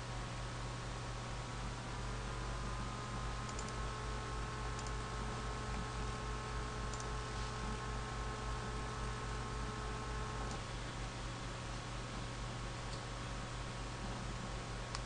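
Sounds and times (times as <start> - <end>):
faint steady whine: 0.0 - 15.0
room hum and hiss: 0.0 - 15.0
computer mouse clicks: 3.4 - 3.8, 4.7 - 5.0, 6.9 - 7.2.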